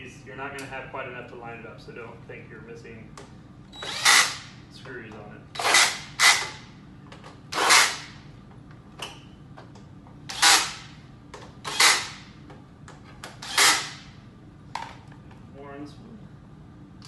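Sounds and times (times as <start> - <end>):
cordless drill driving screws: 3.8 - 4.4, 7.6 - 8.0, 10.3 - 10.8, 11.7 - 12.2, 13.4 - 14.0.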